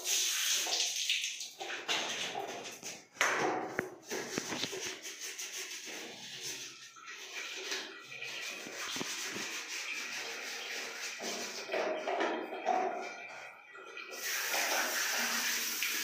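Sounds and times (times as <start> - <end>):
scratchy rubbing on plastic: 4.0 - 6.8, 8.3 - 11.7.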